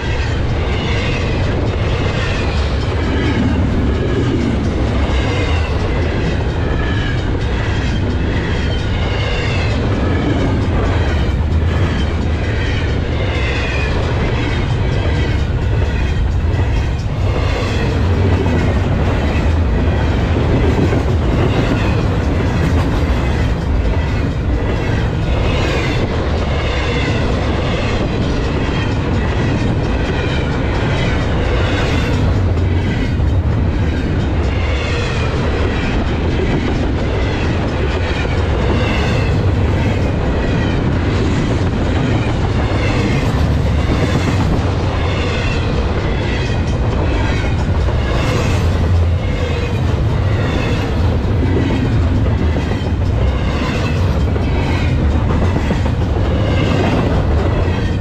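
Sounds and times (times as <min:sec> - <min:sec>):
freight train rumbling past: 0:00.0 - 0:58.0.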